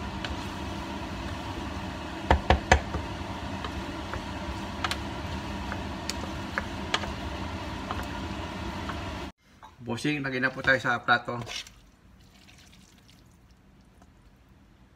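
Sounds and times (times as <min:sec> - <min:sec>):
wooden spoon knocking on pot: 0:02.2 - 0:07.2.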